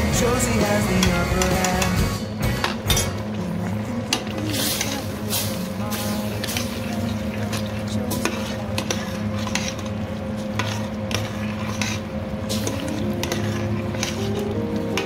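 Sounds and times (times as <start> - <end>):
steady low hum: 0.0 - 15.0
spoon scraping steel pot: 8.1 - 15.0.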